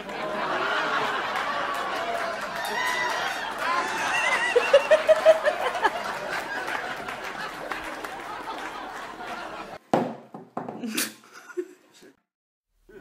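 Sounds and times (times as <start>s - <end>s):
people laughing: 0.0s - 9.8s.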